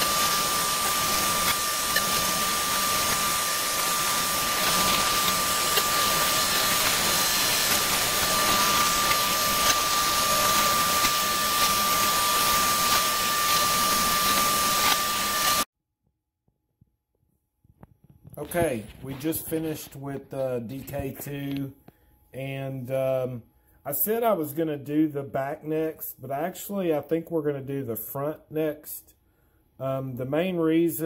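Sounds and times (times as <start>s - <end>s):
router spindle whining: 0.0s - 15.7s.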